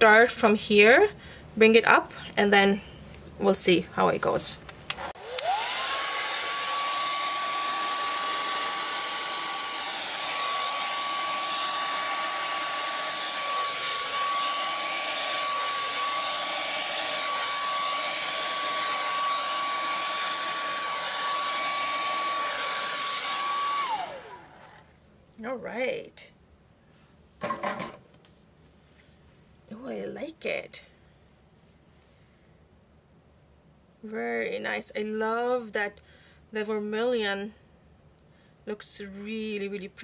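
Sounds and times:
hair dryer motor whine: 4.9s - 24.9s.

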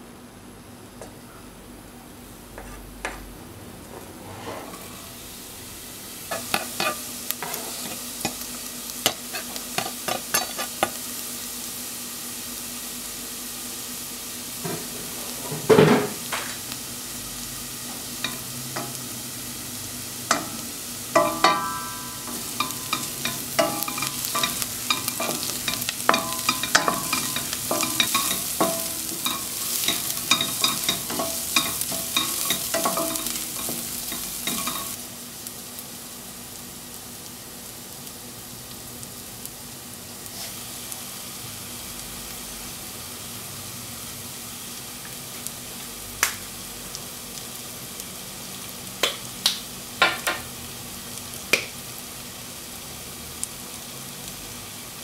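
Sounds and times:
spatula scraping and tapping pot: 2.6s - 3.2s, 6.3s - 8.4s, 9.0s - 11.0s, 21.2s - 35.0s
onion sizzling in oil: 4.3s - 55.0s.

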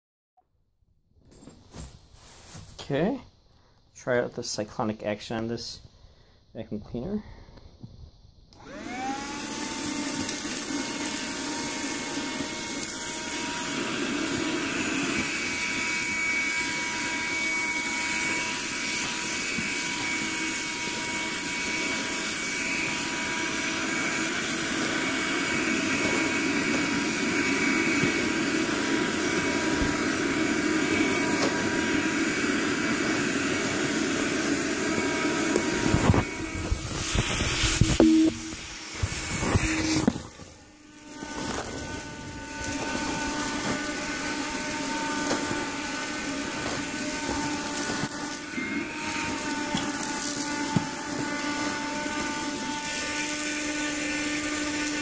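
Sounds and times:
hand vacuum motor whine: 8.5s - 55.0s.

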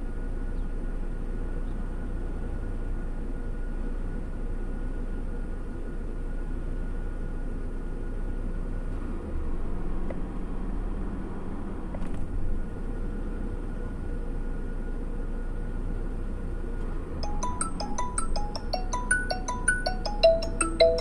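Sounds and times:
car engine idling: 0.0s - 21.0s
faint steady hum: 12.3s - 21.0s.

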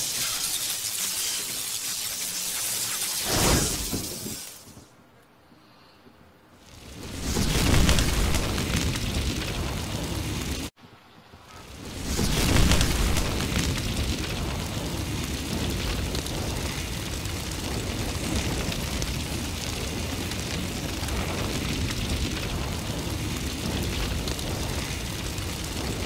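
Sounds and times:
fire roaring and crackling: 0.0s - 4.8s, 6.6s - 10.8s, 11.5s - 26.0s.

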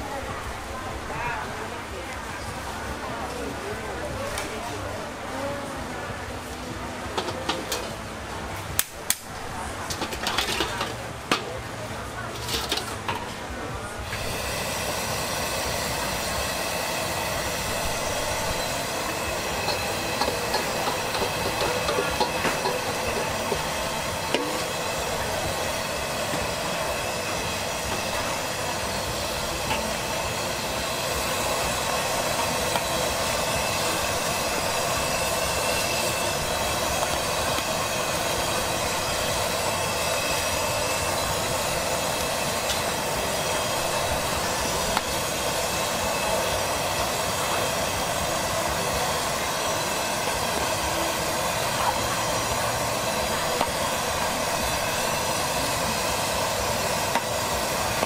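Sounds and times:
deep-frying in hot oil: 7.0s - 58.0s.

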